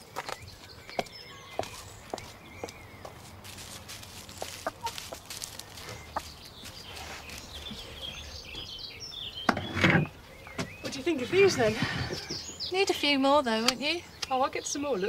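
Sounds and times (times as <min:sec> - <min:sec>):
hens clucking: 0:02.6 - 0:08.7.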